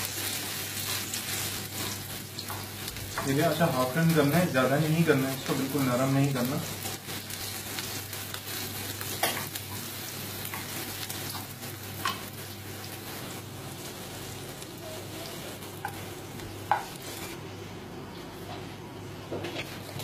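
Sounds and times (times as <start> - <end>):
onions sizzling in a frying pan: 0.0 - 17.6, 19.3 - 20.0
spatula tapping against pan: 16.7 - 16.9.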